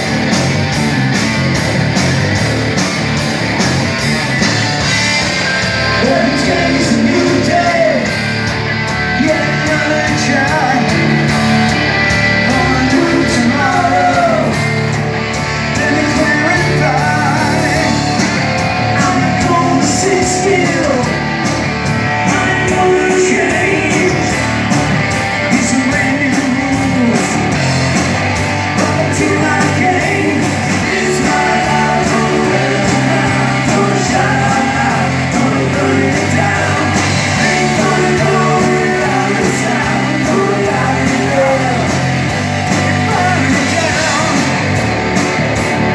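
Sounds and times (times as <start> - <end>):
drum kit with cymbals: 0.0 - 45.9
electric bass: 0.0 - 45.9
electric guitars: 0.0 - 45.9
person singing: 5.9 - 8.2, 12.4 - 14.6, 15.7 - 18.2, 18.8 - 21.2, 22.1 - 24.5, 28.8 - 42.1, 42.7 - 44.6.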